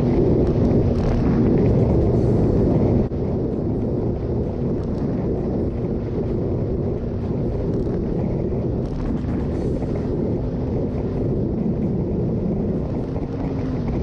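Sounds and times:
motorcycle engine and road drone: 0:00.0 - 0:14.0
wind rushing over microphone: 0:00.0 - 0:14.0.

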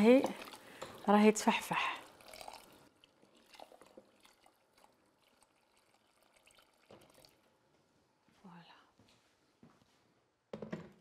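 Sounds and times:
faint water trickle into pot: 0:00.0 - 0:07.8.

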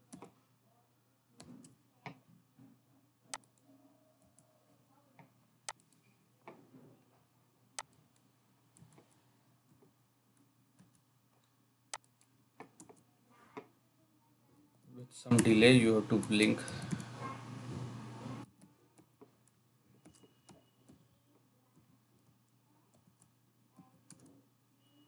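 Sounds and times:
keyboard and mouse clicks: 0:00.1 - 0:00.4, 0:03.3 - 0:03.6, 0:05.7 - 0:06.6, 0:10.8 - 0:13.7, 0:16.2 - 0:17.4, 0:18.4 - 0:21.0, 0:21.8 - 0:24.4.

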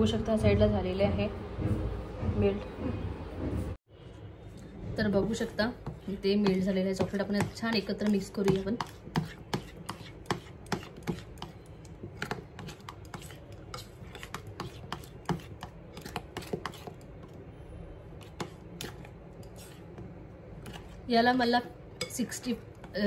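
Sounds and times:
spoon scraping glass bowl: 0:05.8 - 0:17.1, 0:18.2 - 0:20.0, 0:20.6 - 0:21.1.

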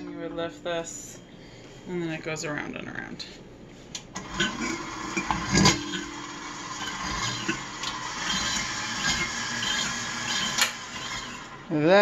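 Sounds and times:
stand mixer running: 0:04.2 - 0:11.7.

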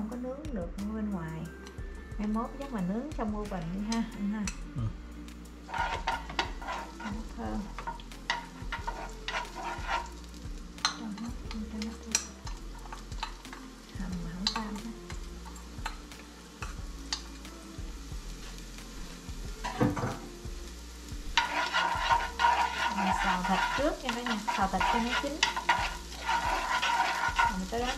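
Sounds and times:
oil sizzling: 0:05.2 - 0:27.9
utensil tapping frying pan: 0:05.6 - 0:17.5, 0:18.4 - 0:20.4, 0:21.0 - 0:27.9.

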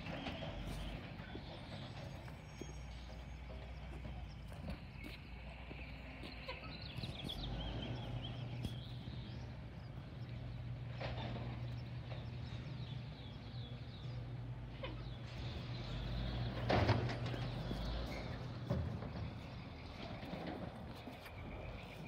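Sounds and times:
clanks and knocks: 0:00.0 - 0:05.2, 0:10.8 - 0:12.7, 0:14.8 - 0:21.3
garbage truck engine running: 0:00.0 - 0:22.0
small birds chirping: 0:00.0 - 0:22.0.

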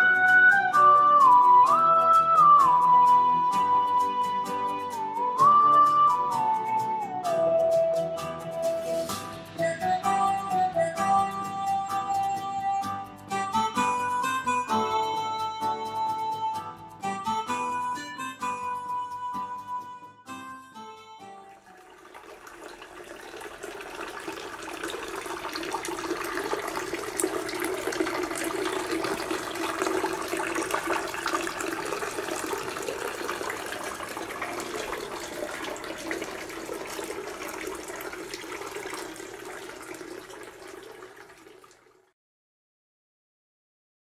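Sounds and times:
fountain water splashing into basin: 0:21.6 - 0:42.1.

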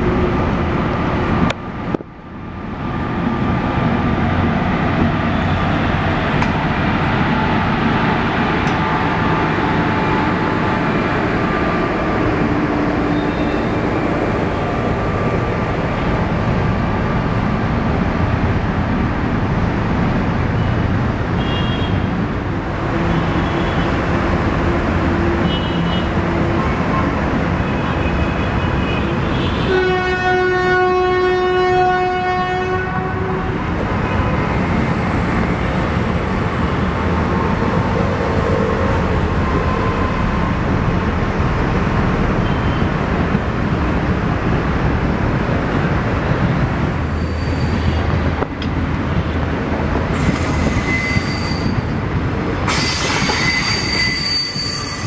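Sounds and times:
train wheels rumbling on track: 0:00.0 - 0:55.0
train horn blast: 0:29.5 - 0:33.6
high wheel squeals: 0:47.0 - 0:48.2, 0:50.2 - 0:52.0, 0:52.7 - 0:55.0.

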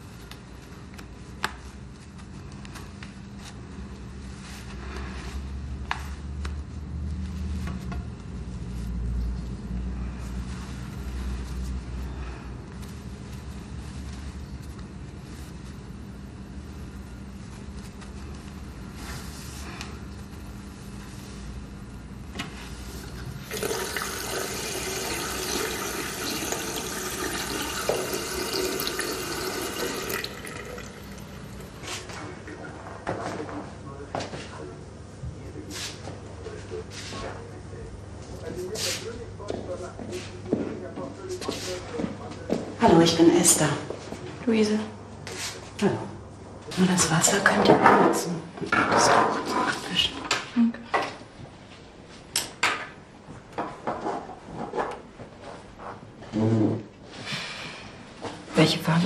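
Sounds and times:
water running: 0:23.0 - 0:32.0.

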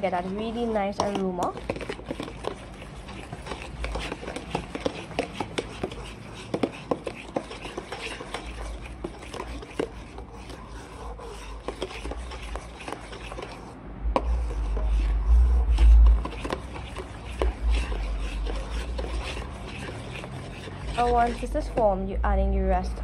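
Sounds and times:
spoon scraping a metal bowl: 0:00.0 - 0:22.0
loud low rumble: 0:15.1 - 0:16.2.

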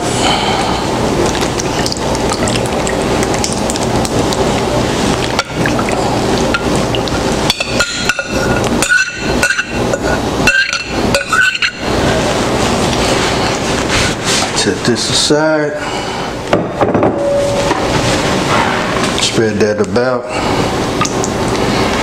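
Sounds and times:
thick sauce pouring: 0:01.1 - 0:09.4
spoon clinking against bowl: 0:07.5 - 0:09.8, 0:10.5 - 0:11.8
metal spoon scraping a bowl: 0:07.6 - 0:11.9.

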